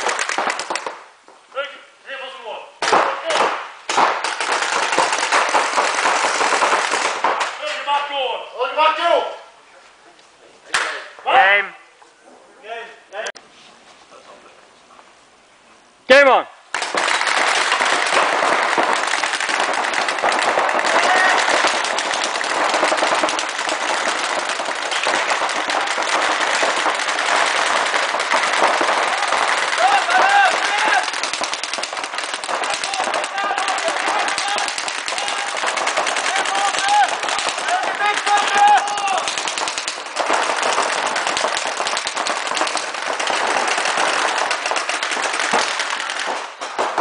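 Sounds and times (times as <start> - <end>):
rapid marker fire echoing: 0.0 - 1.1, 2.8 - 7.6, 16.7 - 47.0.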